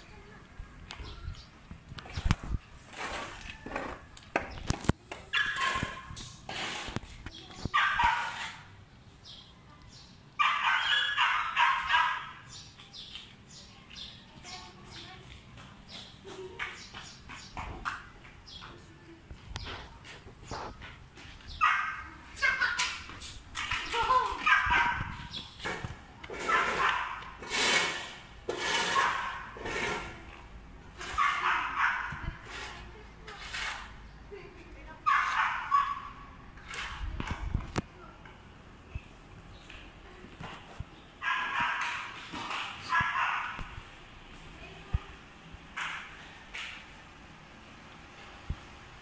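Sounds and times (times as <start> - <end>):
dog barking and yelping: 5.3 - 6.2, 7.7 - 8.6, 10.4 - 12.5, 21.6 - 23.1, 24.2 - 25.3, 26.4 - 27.3, 28.9 - 29.6, 31.0 - 32.3, 35.0 - 36.2, 41.2 - 42.2, 42.8 - 43.7.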